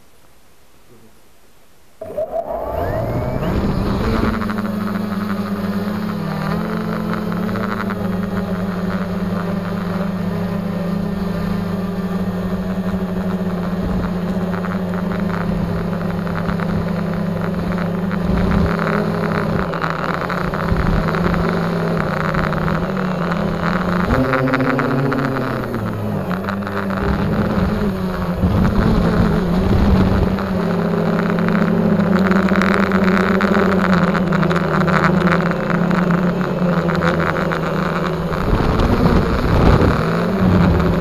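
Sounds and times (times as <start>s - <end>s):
drone motors buzzing: 2.0s - 41.0s.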